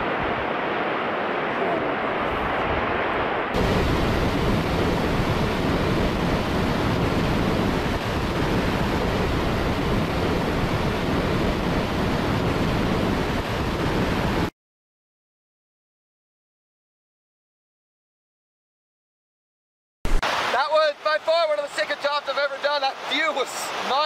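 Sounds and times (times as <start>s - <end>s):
waterfall rushing: 20.1s - 24.0s.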